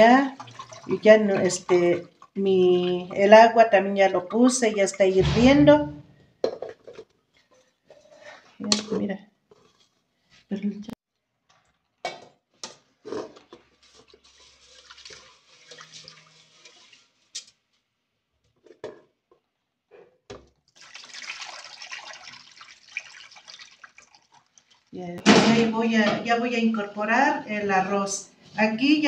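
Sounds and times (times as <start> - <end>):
water sloshing: 0.0 - 3.6, 20.8 - 25.0
water pouring off: 0.3 - 2.2, 14.0 - 17.2, 20.8 - 25.0.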